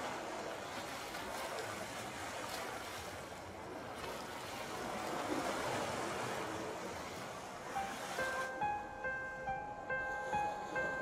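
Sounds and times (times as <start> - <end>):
sea waves breaking on rocks: 0.0 - 8.6.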